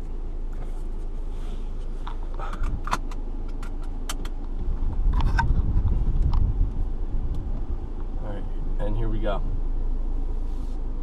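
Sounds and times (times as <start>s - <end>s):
car moving rumble: 0.0s - 11.0s
seatbelt buckle clicking: 2.5s - 4.4s.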